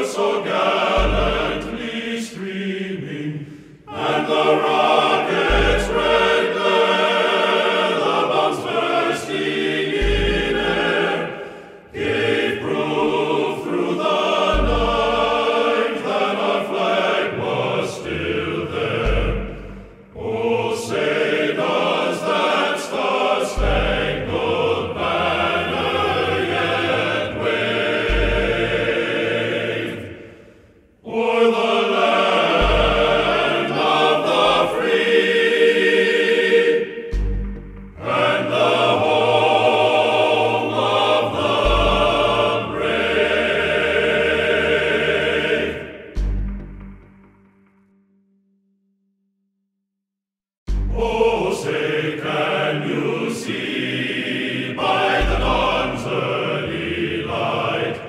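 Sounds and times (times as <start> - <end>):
choir singing with instrumental backing: 0.0 - 47.2, 50.7 - 58.0
deep low hit: 37.1 - 38.0.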